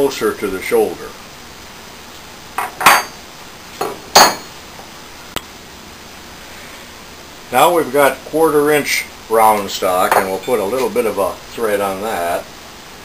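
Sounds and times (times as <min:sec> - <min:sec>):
metal tools clanking: 0:09.6 - 0:11.0.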